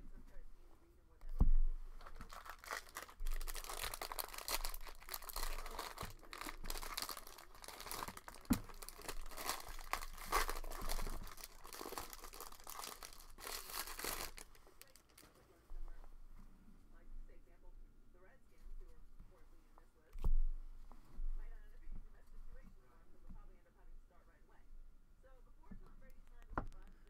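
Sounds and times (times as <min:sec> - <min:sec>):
foil wrapper tearing and crinkling: 0:02.0 - 0:15.4.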